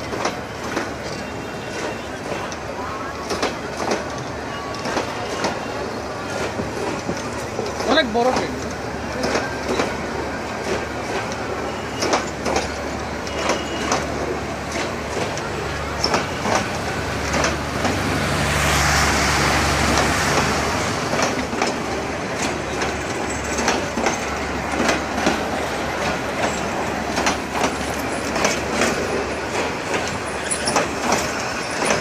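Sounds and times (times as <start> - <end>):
train rumble: 0.0 - 32.0
train wheels clacking: 0.0 - 32.0.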